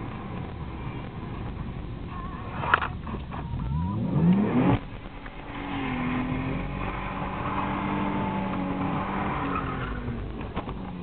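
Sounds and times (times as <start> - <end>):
car engine revving: 0.0 - 11.0.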